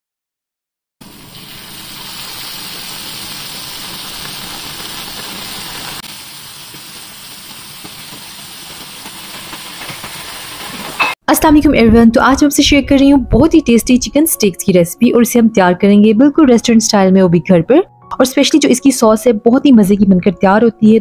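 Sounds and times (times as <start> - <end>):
sauce sizzling on hot plate: 1.0 - 11.2.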